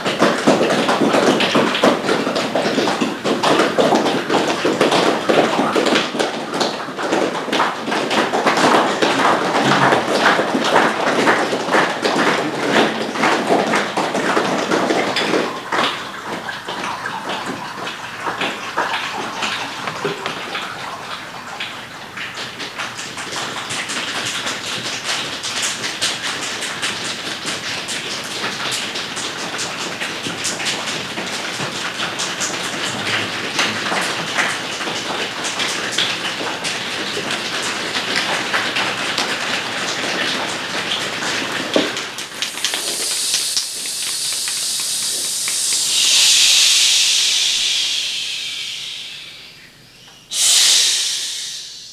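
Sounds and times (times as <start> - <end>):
choir making clicks and taps: 0.0 - 20.6, 41.7 - 49.2
choir hissing shhh: 42.5 - 51.9.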